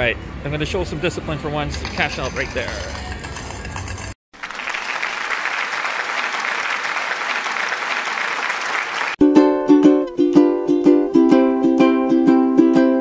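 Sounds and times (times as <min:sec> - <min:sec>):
applause: 0:04.3 - 0:09.2
plucked ukulele music: 0:09.2 - 0:13.0.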